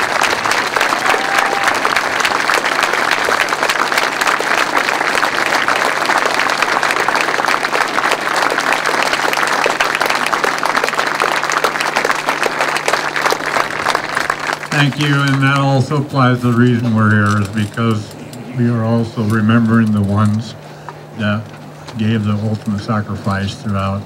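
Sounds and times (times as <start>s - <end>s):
crowd applauding: 0.0s - 18.0s
faint low hum: 0.0s - 24.0s.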